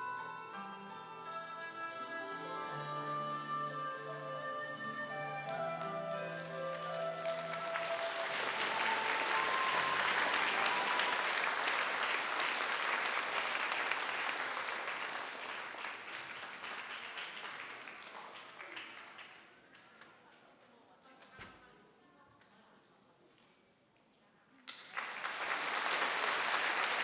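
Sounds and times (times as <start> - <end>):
background music with held notes: 0.0 - 12.6
audience applauding: 5.5 - 19.6, 24.7 - 27.0.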